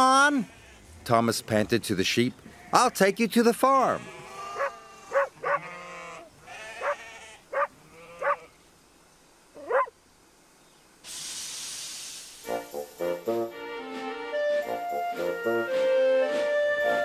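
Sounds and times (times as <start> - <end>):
sheep bleating: 0.0 - 0.9, 2.5 - 8.6
hiss: 11.0 - 13.5
orchestral music: 12.4 - 17.0.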